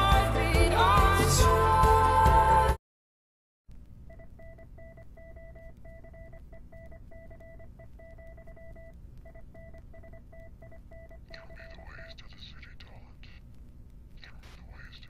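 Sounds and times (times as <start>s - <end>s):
electronic beeps: 4.1s - 12.3s.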